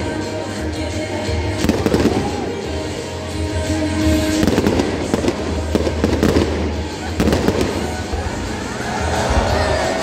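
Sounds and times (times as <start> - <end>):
music playing: 0.0 - 10.0
fireworks bursting: 1.5 - 3.1, 4.1 - 8.6.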